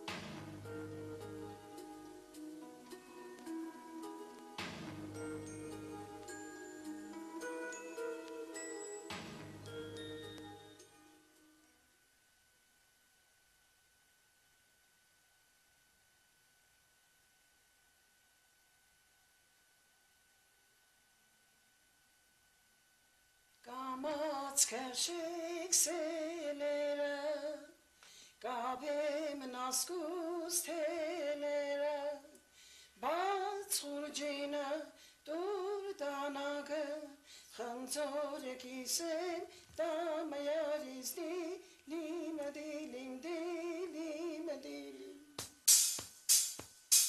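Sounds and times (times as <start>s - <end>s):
person singing unaccompanied: 23.6s - 27.8s, 28.4s - 32.4s, 33.0s - 45.6s.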